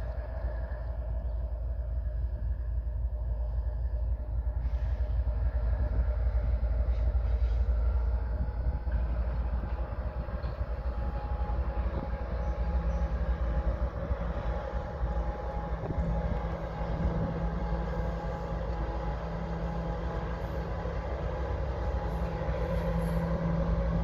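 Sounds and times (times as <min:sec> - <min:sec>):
locomotive engine rumbling: 0:00.0 - 0:24.0.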